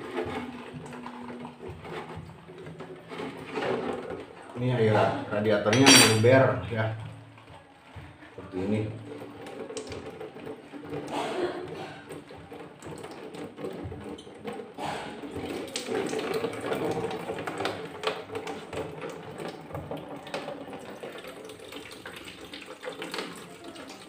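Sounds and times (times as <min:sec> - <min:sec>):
coolant stream splashing into container: 0:08.6 - 0:24.0.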